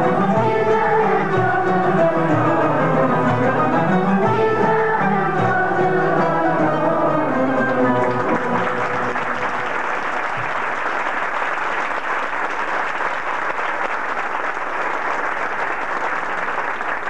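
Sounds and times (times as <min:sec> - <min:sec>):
audience applauding: 0:07.8 - 0:17.0.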